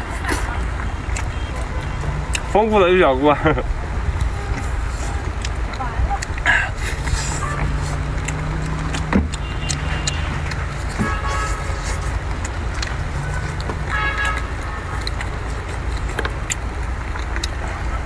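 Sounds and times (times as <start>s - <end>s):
low engine rumble: 0.0s - 18.0s
person eating shellfish: 4.0s - 18.0s.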